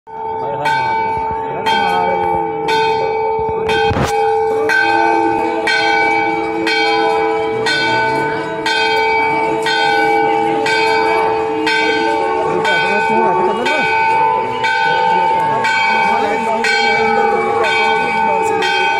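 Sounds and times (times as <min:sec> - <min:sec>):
bells ringing: 0:00.1 - 0:18.9
crowd voices: 0:00.1 - 0:18.9.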